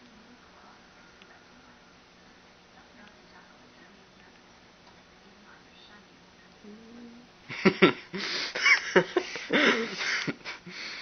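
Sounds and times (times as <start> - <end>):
people laughing and giggling: 7.5 - 10.8.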